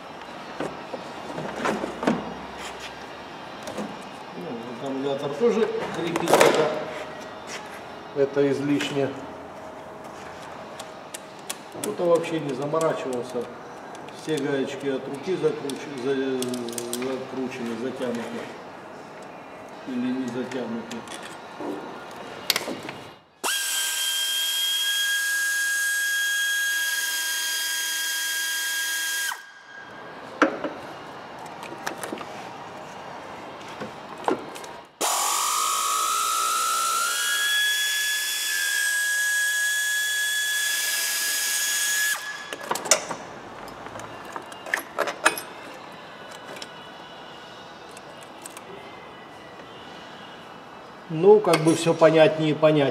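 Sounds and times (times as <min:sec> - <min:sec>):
power driver whining: 0:35.0 - 0:42.4.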